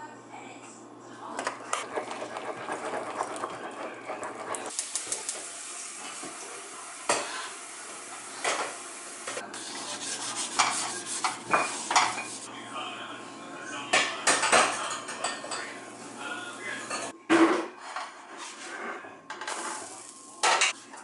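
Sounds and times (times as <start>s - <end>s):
utensil scraping ceramic bowl: 1.7s - 4.7s, 9.6s - 12.5s
butter sizzling in pan: 1.8s - 10.7s
gas burner hiss: 4.6s - 12.5s, 19.5s - 20.7s.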